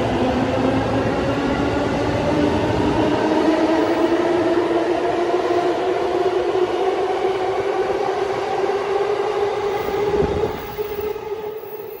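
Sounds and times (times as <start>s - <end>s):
wheels rumbling on rail: 9.4s - 12.0s.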